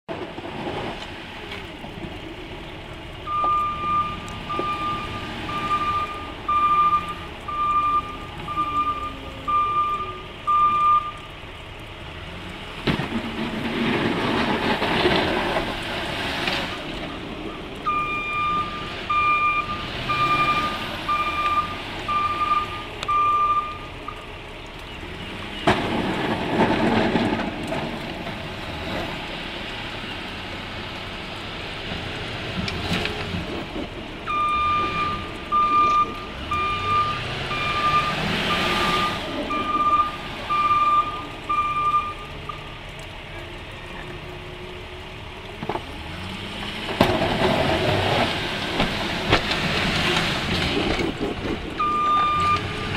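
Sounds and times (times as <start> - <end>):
truck pushing deep snow: 0.1 - 2.6, 3.2 - 11.1, 12.1 - 23.9, 25.1 - 42.6, 45.7 - 52.9
truck backup alarm beeping: 3.2 - 11.4, 17.4 - 24.3, 34.3 - 42.8, 51.8 - 52.9.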